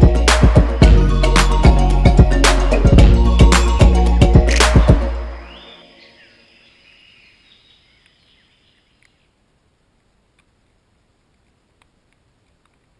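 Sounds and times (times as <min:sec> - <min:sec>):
faint birdsong chirps: 0:05.2 - 0:09.6
faint ticks: 0:09.0 - 0:12.9.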